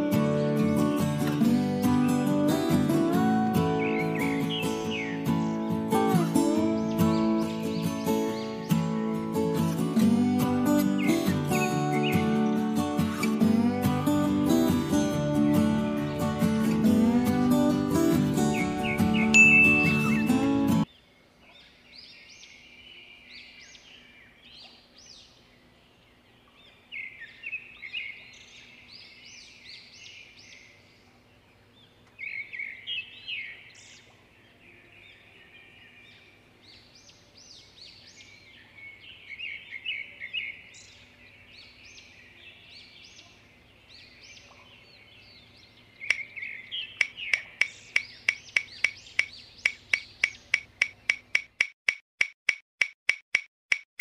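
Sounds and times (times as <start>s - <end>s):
birds chirping and singing: 0.0s - 51.4s
fast regular clicking: 47.0s - 53.9s.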